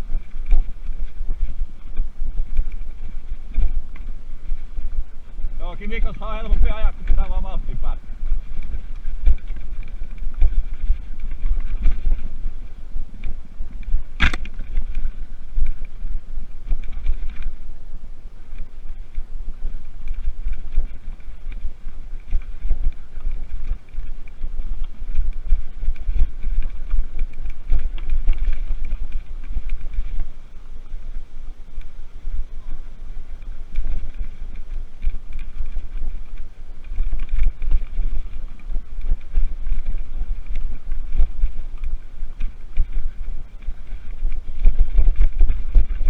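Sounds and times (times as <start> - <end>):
bike jolting over bumps: 0.0 - 17.6
mountain bike rolling on dirt: 0.0 - 46.0
wind buffeting microphone: 0.0 - 46.0
bike rattles and knocks: 5.6 - 16.0, 20.0 - 30.2.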